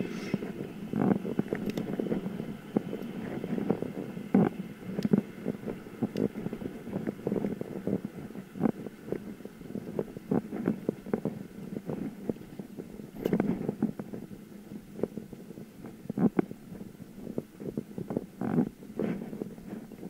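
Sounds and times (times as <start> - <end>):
bicycle rattling over rough road: 0.0 - 20.0.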